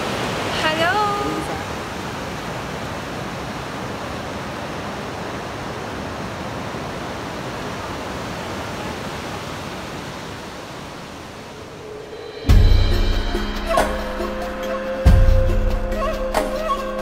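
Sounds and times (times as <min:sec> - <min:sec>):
whitewater rushing over rocks: 0:00.0 - 0:12.0.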